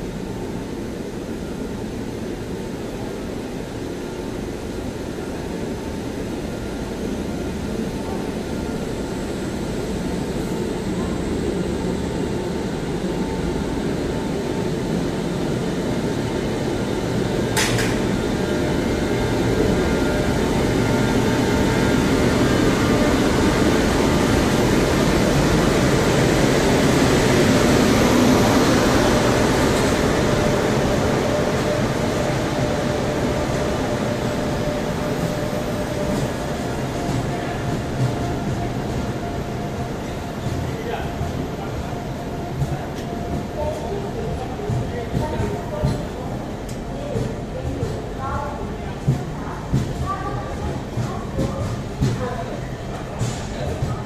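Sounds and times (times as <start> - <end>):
train rumbling past on rails: 0.0 - 54.0.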